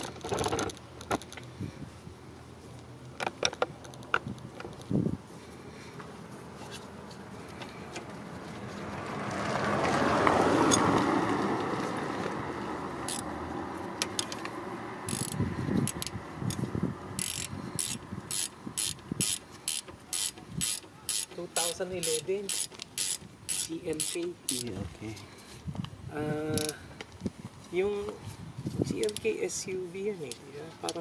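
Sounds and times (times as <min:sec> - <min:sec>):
ratchet wrench clicking: 0:13.0 - 0:13.3, 0:14.0 - 0:24.8, 0:26.5 - 0:26.8, 0:29.0 - 0:29.5.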